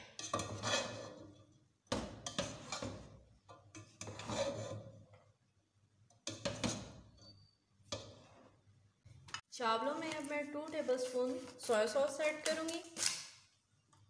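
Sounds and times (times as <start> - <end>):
spatula scraping a pot: 0.0 - 1.6, 2.2 - 5.2, 6.2 - 8.6.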